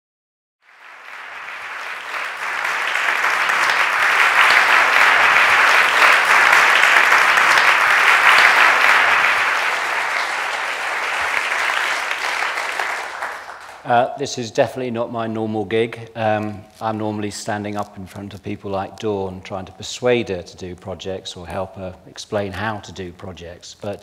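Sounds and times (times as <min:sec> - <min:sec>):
audience applauding: 0:00.6 - 0:14.0.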